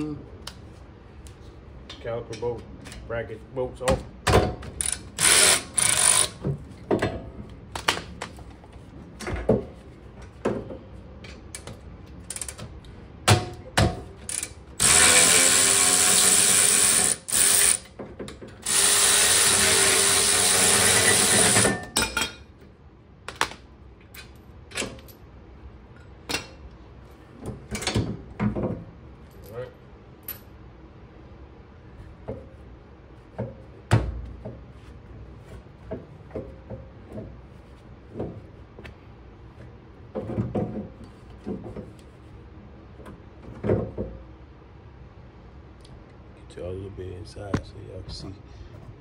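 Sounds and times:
power tool running: 5.2s - 6.4s, 14.8s - 17.9s, 18.6s - 21.7s.

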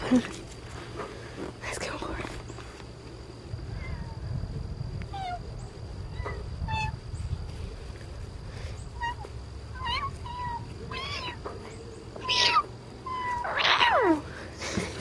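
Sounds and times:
cat meowing: 5.1s - 5.4s, 6.1s - 7.0s, 9.0s - 11.4s, 12.2s - 14.2s.

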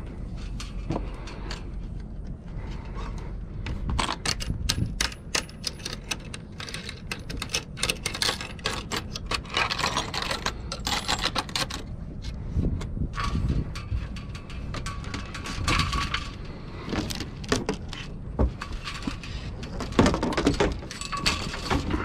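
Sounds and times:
metal rigging hardware clinking: 13.1s - 22.0s.

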